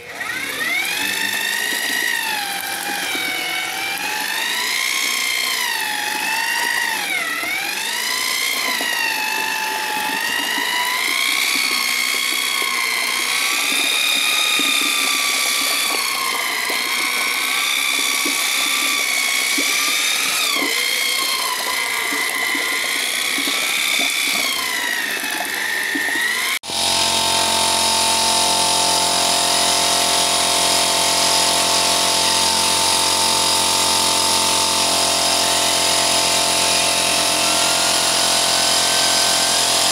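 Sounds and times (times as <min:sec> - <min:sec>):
electric drill mixer motor whine: 0:00.0 - 0:39.9
steady machine hum: 0:26.6 - 0:39.9.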